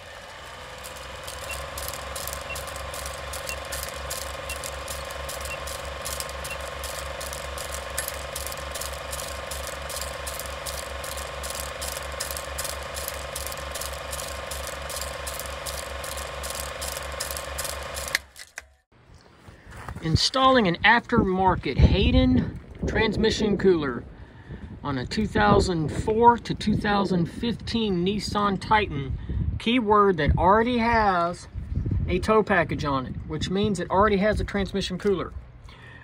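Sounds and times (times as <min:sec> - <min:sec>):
projector hum: 0:00.0 - 0:18.7
film projector clicking: 0:00.0 - 0:18.8.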